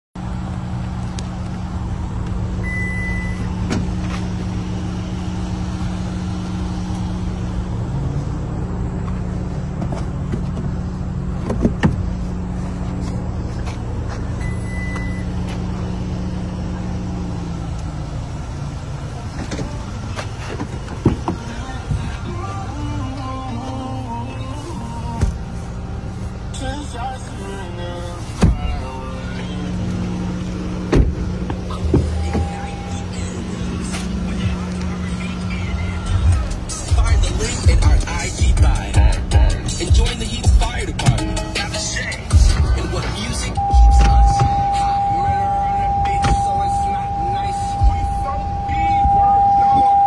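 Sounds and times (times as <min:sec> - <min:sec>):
pickup truck engine idling: 0:00.2 - 0:50.0
short high beeps: 0:02.6 - 0:03.5, 0:43.6 - 0:50.0.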